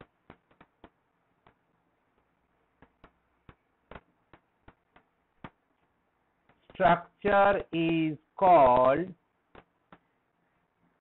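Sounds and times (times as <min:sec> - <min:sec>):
stylus tapping on pen tablet: 0:00.0 - 0:05.7, 0:09.4 - 0:10.1.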